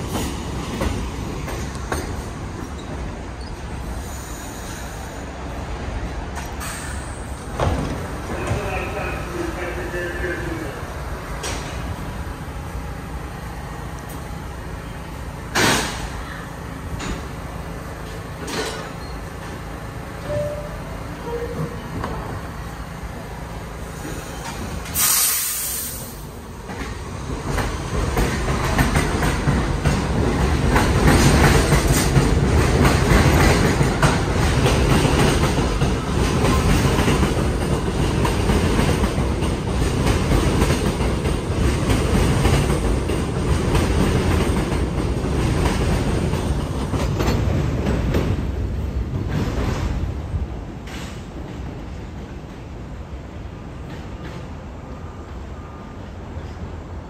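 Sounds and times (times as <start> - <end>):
train rumble: 0.0 - 57.0
train wheels clattering over rail joints: 18.0 - 19.6, 26.6 - 50.2
short loud hiss: 24.8 - 26.2.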